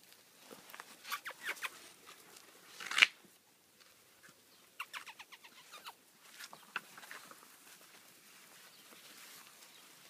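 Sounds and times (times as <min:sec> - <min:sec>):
puppies yelping and squeaking: 0:01.0 - 0:01.8, 0:04.8 - 0:06.0.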